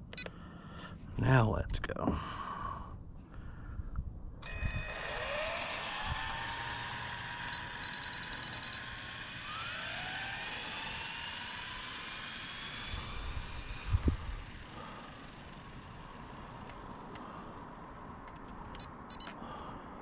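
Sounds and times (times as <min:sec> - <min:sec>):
electric rc car motor whine: 0:04.4 - 0:17.9
short electronic beeps: 0:07.5 - 0:08.9, 0:18.8 - 0:19.3.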